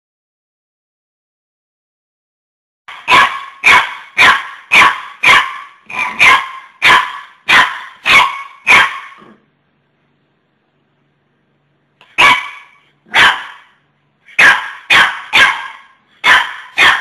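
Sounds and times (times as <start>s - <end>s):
puppy barking: 2.9s - 9.4s, 12.0s - 17.0s.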